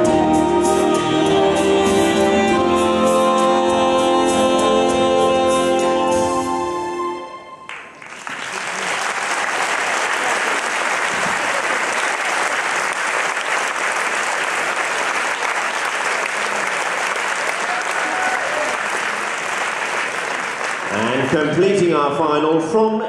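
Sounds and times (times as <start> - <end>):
audience applause: 7.7 - 21.9.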